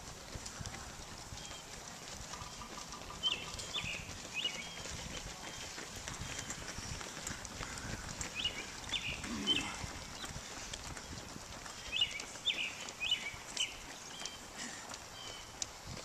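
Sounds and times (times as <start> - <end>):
running shoes slapping on asphalt: 0.0 - 16.0
bird chirping: 2.4 - 4.9, 8.4 - 10.3, 11.8 - 14.5.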